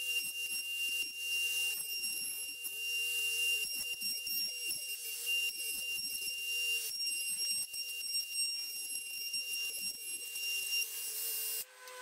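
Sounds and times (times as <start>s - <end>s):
router bit cutting wood: 0.0s - 12.0s
router high-pitched whine: 0.0s - 12.0s.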